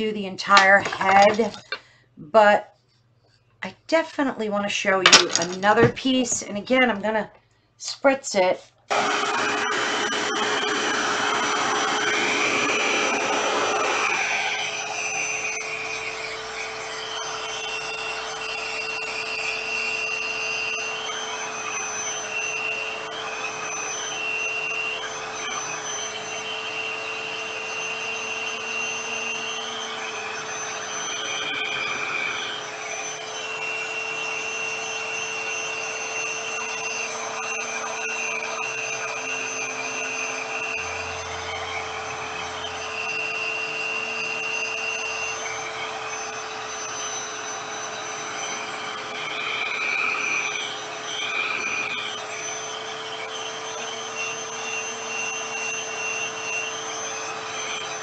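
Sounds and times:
hair dryer rush of air: 8.9 - 58.0
faint wavering whistle: 14.1 - 58.0.

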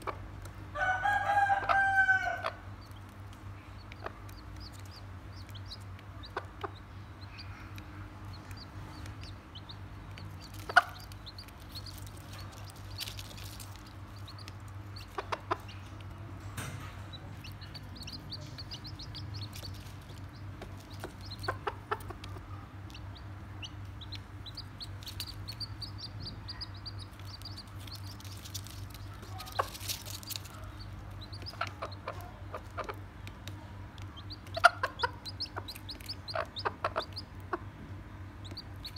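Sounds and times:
chicks peeping: 0.0 - 38.9
hen clucking softly: 30.5 - 33.0, 34.2 - 37.7.

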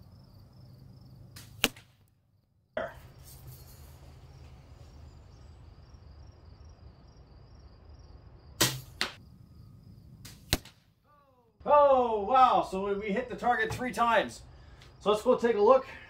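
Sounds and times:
bb gun snap: 1.4 - 1.9, 10.2 - 10.8.

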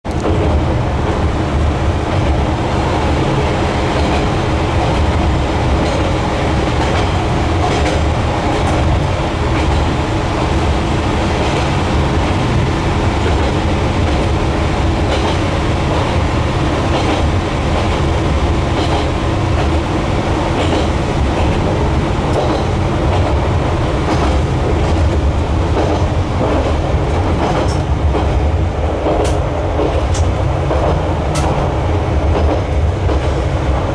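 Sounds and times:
train rumble and hum: 0.0 - 33.9.

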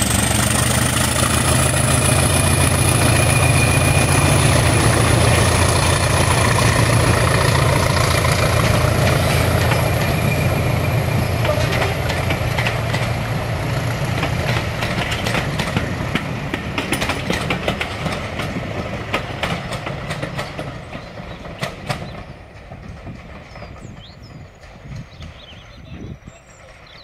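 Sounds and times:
low diesel engine rumble: 0.0 - 16.8
train wheels clicking on rail joints: 0.0 - 27.0.

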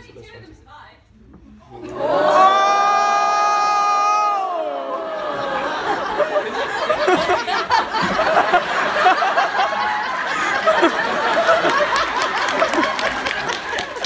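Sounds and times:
audience laughing and chattering: 4.5 - 14.0.

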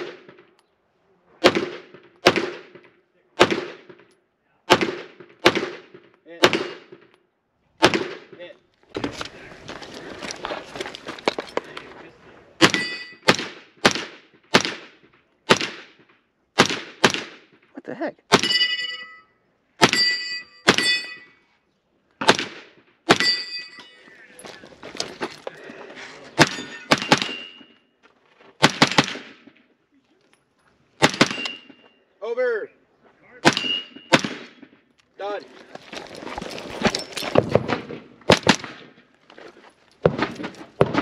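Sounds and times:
gunshots: 0.0 - 0.5, 1.4 - 4.1, 4.7 - 7.1, 7.8 - 9.2, 12.6 - 17.6, 22.2 - 23.4, 26.4 - 27.7, 28.6 - 29.6, 31.0 - 31.8, 33.4 - 34.8, 36.9 - 39.1, 40.0 - 41.0
steel targets ringing: 12.6 - 13.3, 18.4 - 21.4, 23.1 - 24.3, 26.4 - 27.8, 33.6 - 34.1.

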